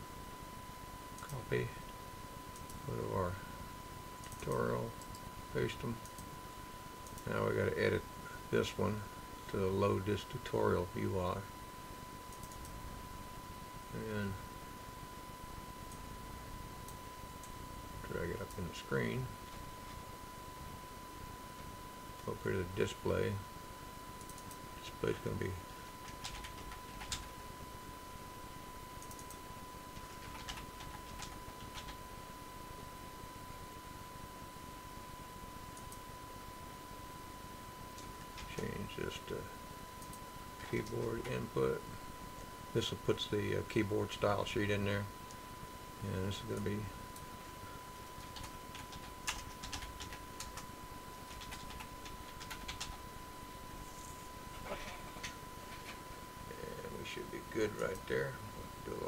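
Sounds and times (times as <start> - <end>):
keyboard typing: 26.0 - 27.3, 29.0 - 29.4, 30.0 - 32.0, 48.0 - 50.6, 51.3 - 53.0.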